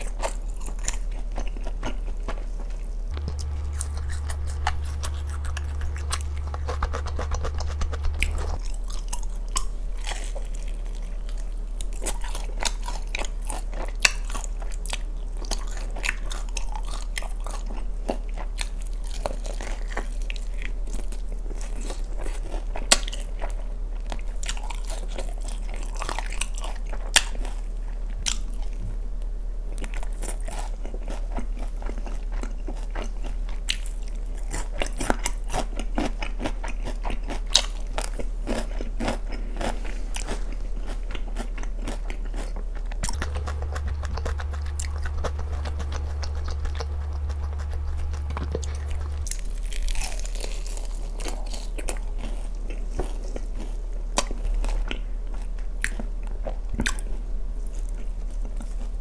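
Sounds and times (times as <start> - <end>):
crunchy chewing: 0.0 - 59.0
low hum: 2.8 - 13.1, 42.8 - 51.4.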